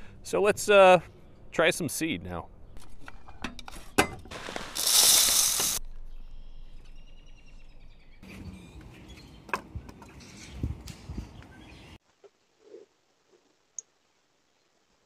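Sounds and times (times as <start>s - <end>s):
birds chirping: 0.0s - 4.0s, 5.8s - 12.0s
seed pouring into feeder: 4.4s - 5.8s.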